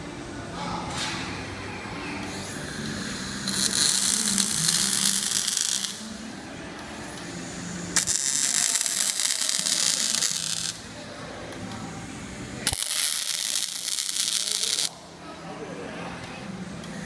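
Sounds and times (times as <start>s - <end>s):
welding arcs crackling and hissing: 2.2s - 10.9s, 11.5s - 15.0s.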